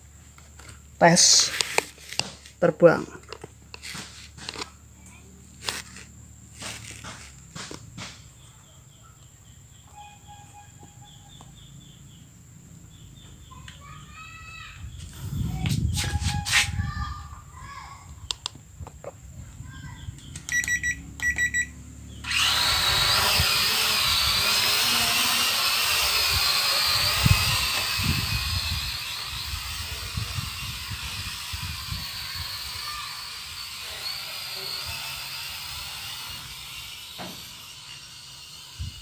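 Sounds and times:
drone motors whining: 0:20.0 - 0:39.0
short electronic beeps: 0:20.5 - 0:21.8.

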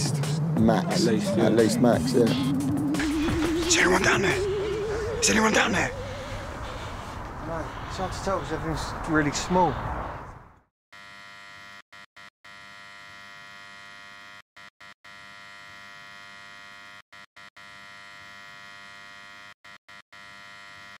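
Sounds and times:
neon sign buzzing: 0:12.5 - 0:21.0.

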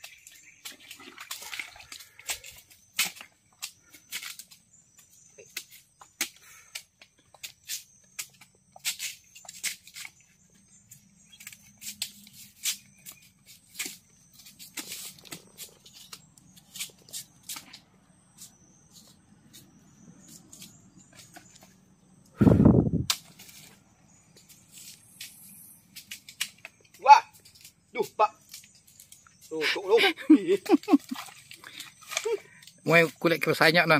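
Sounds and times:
machete snapping palm leaves: 0:02.2 - 0:04.6, 0:23.0 - 0:23.8.

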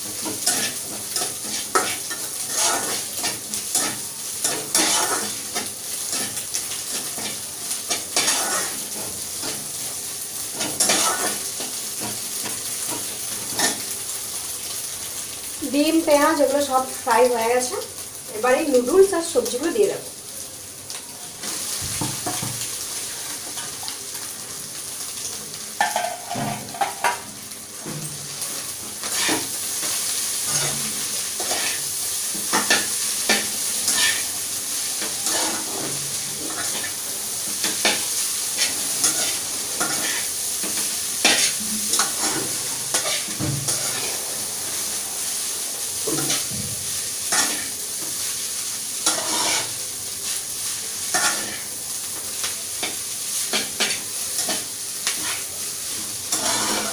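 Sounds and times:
spatula clicking and scraping pan: 0:00.0 - 0:09.7, 0:10.4 - 0:13.9, 0:25.8 - 0:27.2, 0:28.9 - 0:44.2, 0:46.0 - 0:46.5, 0:47.2 - 0:48.2, 0:49.0 - 0:49.8, 0:51.1 - 0:51.7, 0:52.4 - 0:55.5, 0:56.2 - 0:56.9
noodles sizzling in a frying pan: 0:00.0 - 0:56.9.

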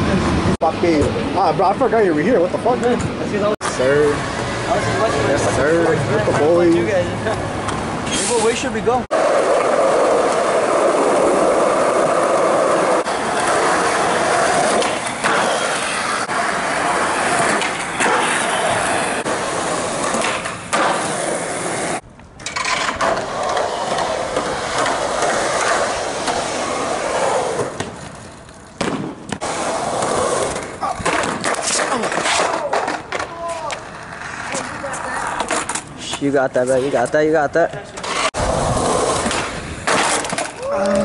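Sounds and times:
skateboard wheels rolling on concrete: 0:00.0 - 0:41.0
skateboard clacks: 0:09.1 - 0:36.2.

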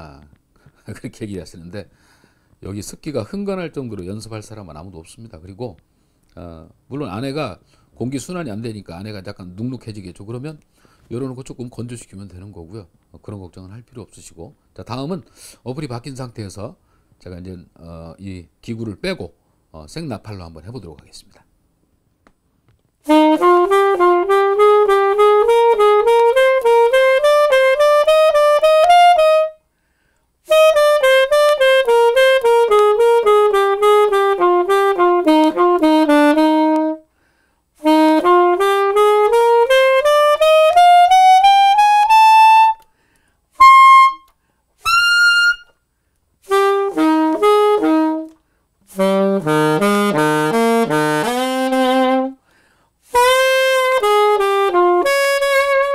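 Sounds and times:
player breathing: 0:01.9 - 0:02.6, 0:29.7 - 0:30.3, 0:37.1 - 0:37.7, 0:42.9 - 0:43.4, 0:52.4 - 0:53.0
alto saxophone playing scales: 0:23.0 - 0:29.6, 0:30.4 - 0:37.1, 0:37.8 - 0:42.9, 0:43.5 - 0:45.8, 0:46.4 - 0:55.9.

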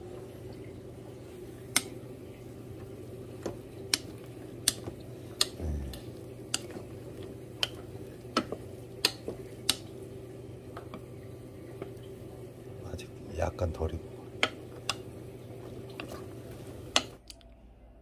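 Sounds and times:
steady low hum: 0:00.0 - 0:18.0
wooden spatula knocking on pot: 0:07.6 - 0:09.9.

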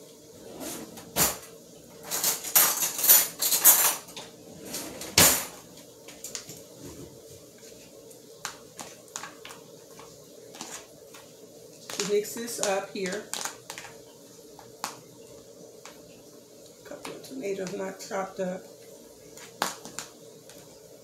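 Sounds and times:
cutlery and dishes clattering: 0:00.7 - 0:05.5.

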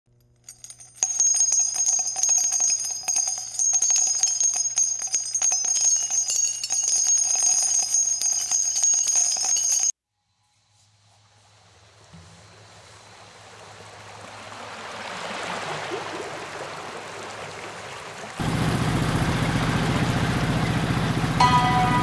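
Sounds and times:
steady high ringing: 0:00.2 - 0:09.9, 0:18.4 - 0:22.0
jingle bells shaken rapidly: 0:00.5 - 0:09.9.

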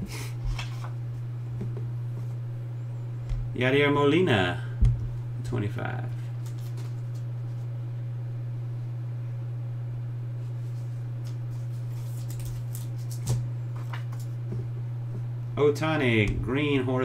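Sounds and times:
low hum: 0:00.0 - 0:17.0
trading cards handling: 0:06.4 - 0:07.7, 0:10.6 - 0:14.4.

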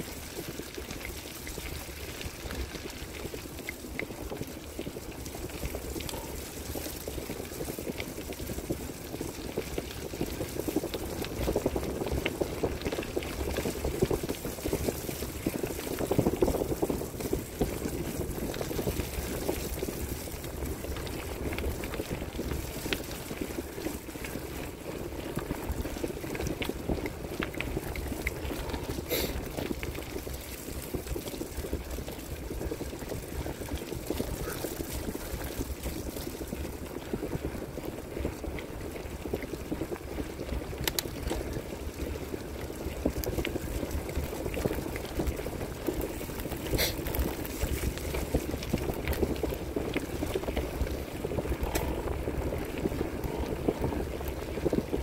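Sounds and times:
bicycle tyres rolling on gravel: 0:00.0 - 0:55.0
small clicks: 0:40.8 - 0:41.5.

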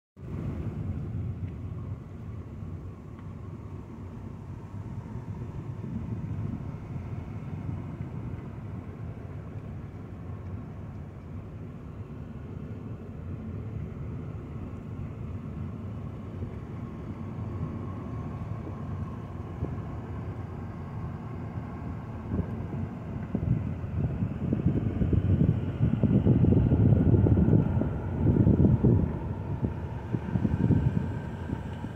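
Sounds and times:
car driving along a road: 0:00.2 - 0:31.9.

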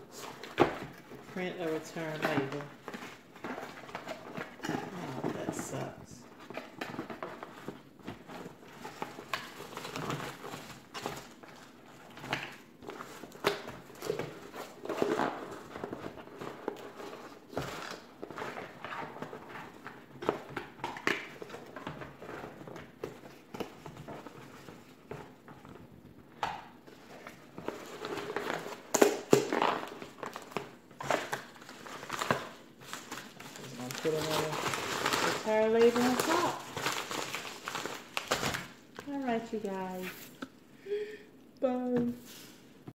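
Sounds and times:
paper mailer crinkling: 0:26.9 - 0:40.4.

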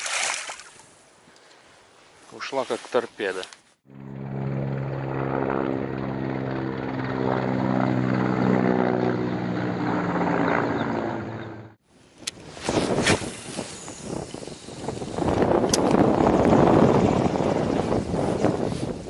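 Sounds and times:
low hum: 0:03.9 - 0:11.8
propeller aircraft engine droning: 0:03.9 - 0:11.8.

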